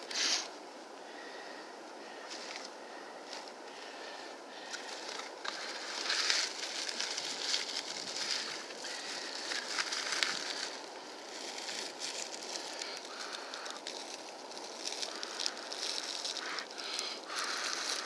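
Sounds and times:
dry leaves rustling and crackling: 0:04.6 - 0:18.0.

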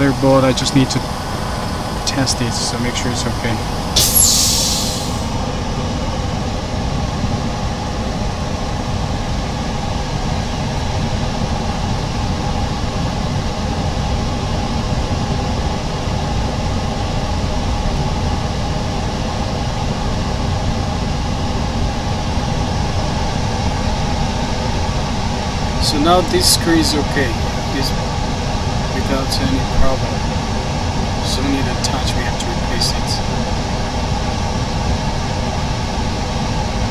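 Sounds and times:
workshop machinery drone: 0:00.0 - 0:05.6, 0:25.5 - 0:33.5.

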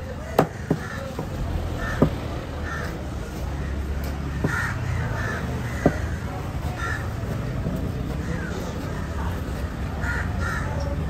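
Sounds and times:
crows cawing: 0:00.2 - 0:07.2, 0:08.2 - 0:09.3, 0:09.9 - 0:11.0
knife chopping on wooden board: 0:00.4 - 0:01.3, 0:05.8 - 0:06.1.

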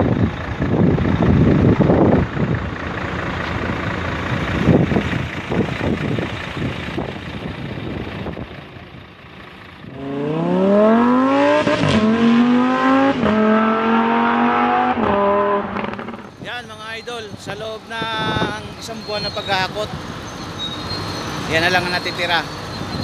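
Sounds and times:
wind buffeting microphone: 0:00.0 - 0:02.8
engine revving hard: 0:09.9 - 0:16.3.

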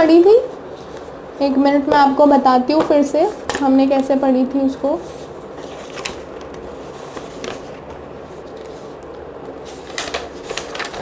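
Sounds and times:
low room hum: 0:00.0 - 0:11.0
notebook pages rustling: 0:05.0 - 0:11.0.

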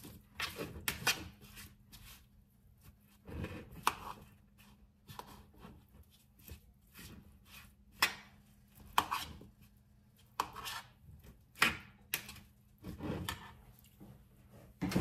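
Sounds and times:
rustling and scraping: 0:12.4 - 0:15.0.

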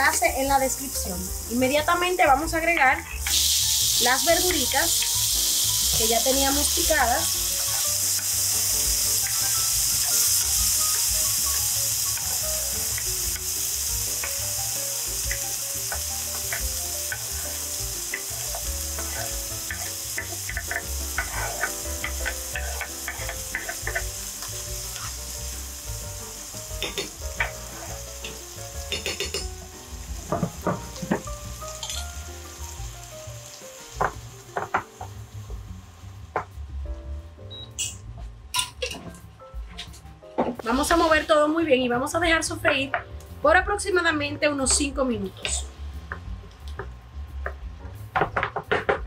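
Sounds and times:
vegetables sizzling in frying pan: 0:00.0 - 0:36.8.

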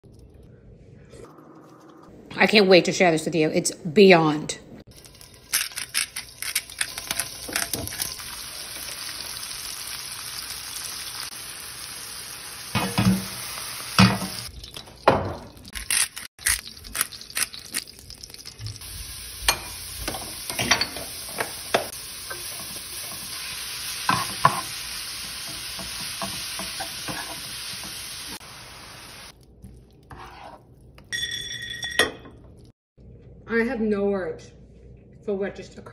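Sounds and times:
food sizzling in oil: 0:04.9 - 0:29.4.

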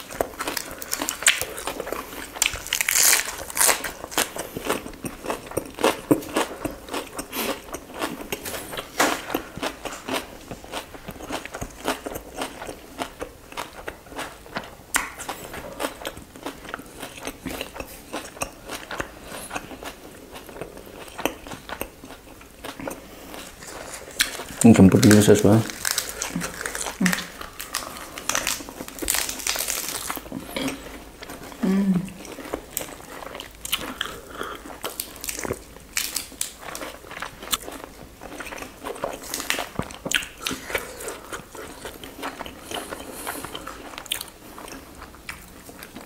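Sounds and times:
crisp crunches: 0:00.0 - 0:04.4, 0:23.4 - 0:30.8
wet chewing: 0:00.0 - 0:46.0.

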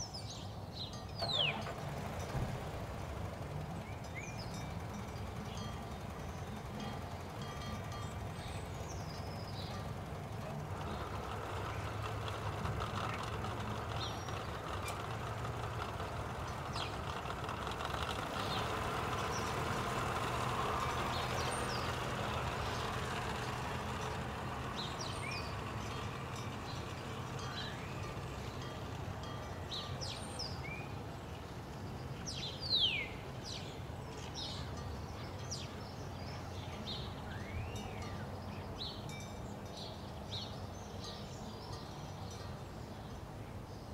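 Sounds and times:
birds chirping: 0:00.0 - 0:43.9
distant traffic rumble: 0:00.0 - 0:43.9
loud falling bird chirp: 0:01.2 - 0:01.6.

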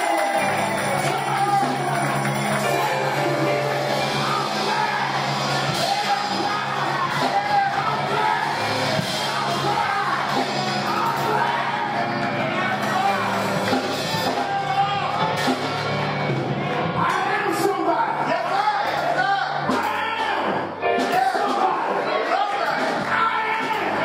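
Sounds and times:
congregation singing: 0:00.0 - 0:24.0
sustained low instrumental chords: 0:00.4 - 0:17.4.

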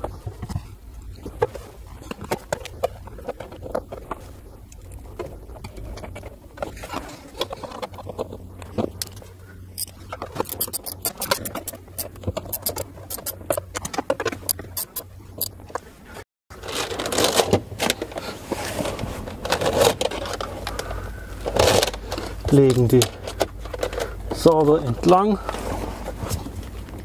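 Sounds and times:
cables rustling and scraping: 0:00.0 - 0:27.0
metallic clicks from hand tool: 0:09.8 - 0:13.5, 0:14.4 - 0:15.5.

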